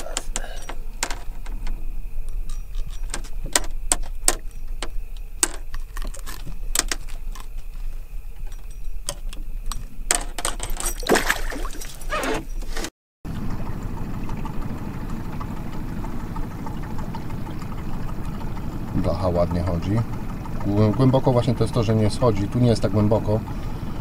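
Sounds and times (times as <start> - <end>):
fish rattling while unhooked: 0.0 - 12.7
low steady hum: 0.0 - 12.7, 13.3 - 24.0.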